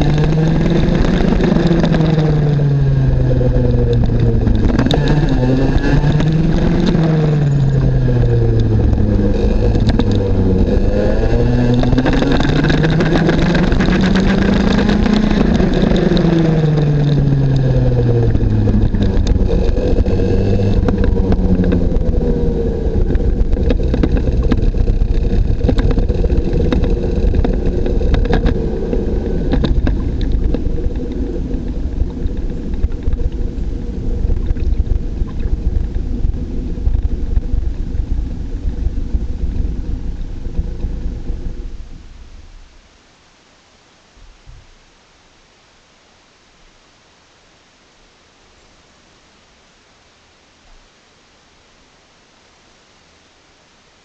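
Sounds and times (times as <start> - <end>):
kart engine revving: 0.0 - 41.9.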